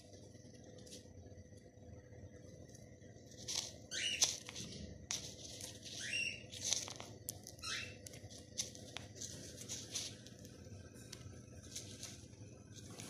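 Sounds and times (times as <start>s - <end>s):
seeds rustling and pattering: 2.6s - 13.0s
bird chirping: 3.9s - 4.4s, 5.9s - 6.6s, 7.6s - 8.0s.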